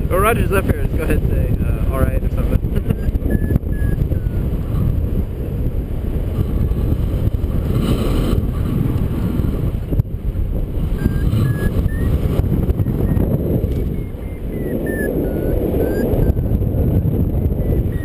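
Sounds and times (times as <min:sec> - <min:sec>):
wind buffeting microphone: 0:00.0 - 0:18.0
faint short beeps: 0:03.3 - 0:04.4, 0:11.0 - 0:12.2, 0:12.8 - 0:13.2, 0:13.8 - 0:16.6, 0:17.5 - 0:18.0.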